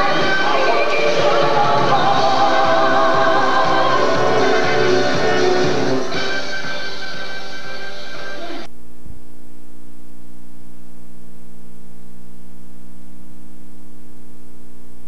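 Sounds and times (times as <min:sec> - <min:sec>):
music: 0:00.0 - 0:08.7.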